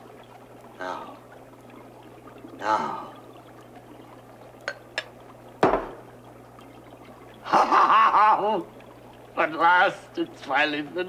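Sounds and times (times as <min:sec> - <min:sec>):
glassware clinking: 0:04.6 - 0:06.0.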